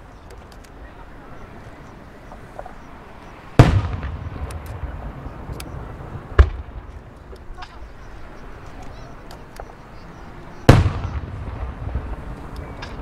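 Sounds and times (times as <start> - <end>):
long rumbling echo: 3.5 - 8.5, 10.7 - 13.0
firework shells booming: 3.6 - 7.2, 10.7 - 13.0.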